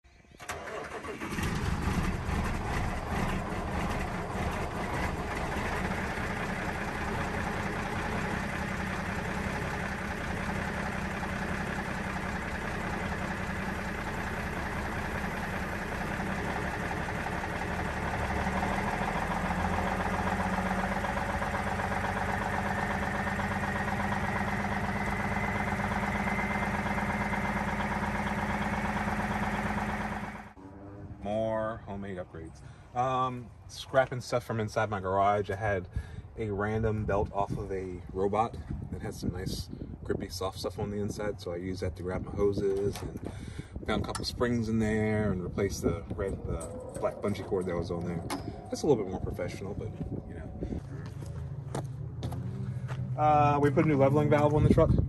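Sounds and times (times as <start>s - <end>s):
diesel truck engine running: 0.4s - 30.9s, 42.1s - 55.0s
faint rising whine: 44.6s - 54.3s.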